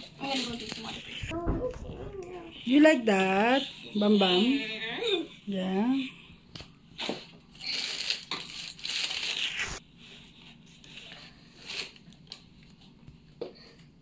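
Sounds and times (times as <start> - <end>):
cardboard packaging crinkling: 7.6 - 9.8.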